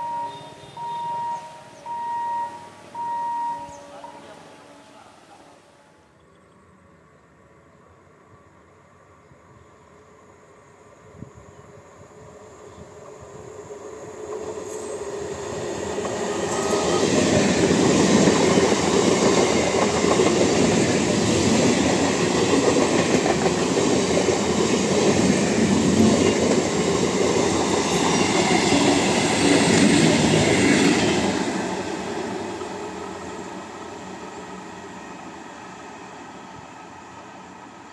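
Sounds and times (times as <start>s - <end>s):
train wheels on rails: 11.0s - 37.9s.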